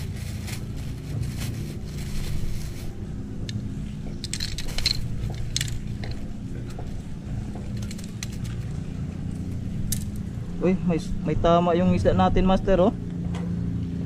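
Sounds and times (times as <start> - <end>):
low engine hum: 0.0 - 14.0
plastic grip clicking and rattling: 4.2 - 6.2.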